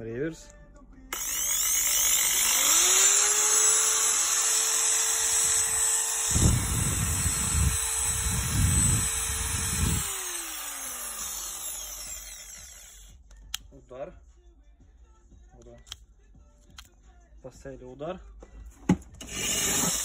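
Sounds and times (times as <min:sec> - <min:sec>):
drill motor whine: 0:01.1 - 0:13.2, 0:19.2 - 0:20.0.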